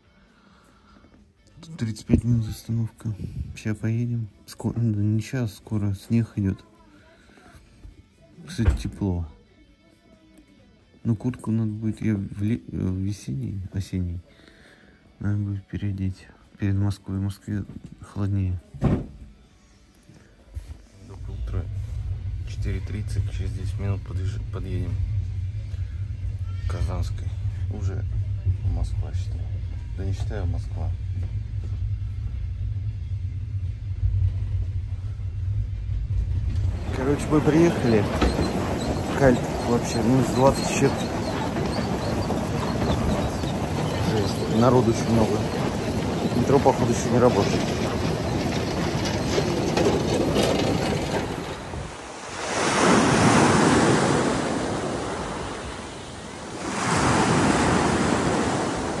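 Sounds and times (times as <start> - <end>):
train rumbling from inside carriage: 21.0 - 59.0
wind buffeting microphone: 35.5 - 59.0.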